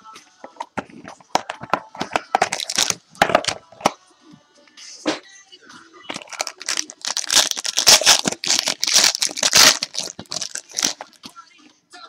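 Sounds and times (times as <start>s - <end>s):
card pack wrappers crinkling: 1.3s - 3.9s, 6.1s - 11.3s.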